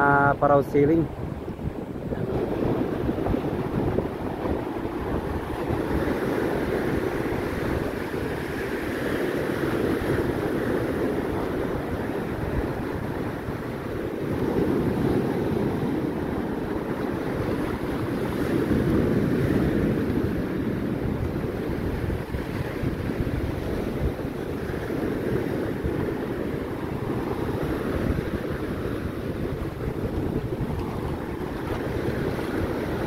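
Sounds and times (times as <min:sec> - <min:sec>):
storm surf breaking on sand beach: 0:00.0 - 0:33.0
wind rumbling on microphone: 0:00.0 - 0:33.0.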